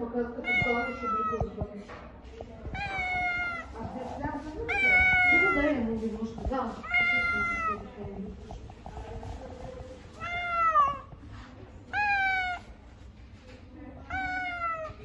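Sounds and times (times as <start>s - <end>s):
cat meowing: 0.4s - 1.6s, 2.7s - 3.8s, 4.7s - 5.8s, 6.8s - 7.9s, 10.2s - 11.2s, 11.9s - 12.7s, 14.1s - 15.0s.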